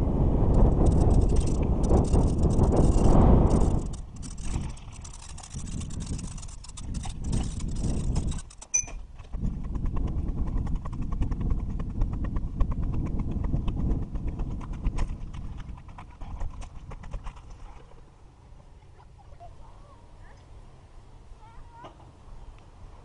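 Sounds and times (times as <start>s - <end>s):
bike clicks and rattles: 0.6s - 11.6s
bicycle rolling over rough dirt: 0.6s - 18.1s.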